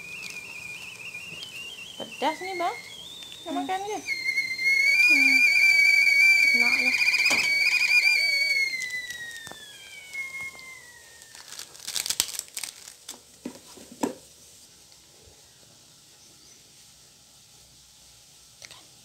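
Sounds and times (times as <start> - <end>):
high whistling tone sliding down: 0.0 - 11.7
plastic sachets crinkling: 0.0 - 13.4
sharp plastic crackle: 0.0 - 13.6.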